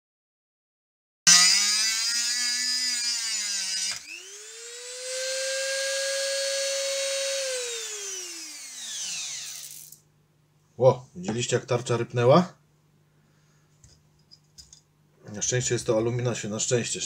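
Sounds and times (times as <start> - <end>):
cutting disc grinding metal: 1.3 - 10.0
rotary tool motor whine: 1.3 - 10.0.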